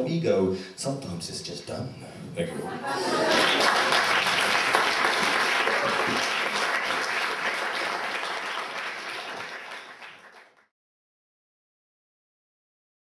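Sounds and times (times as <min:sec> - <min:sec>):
audience applauding: 0:02.9 - 0:10.7.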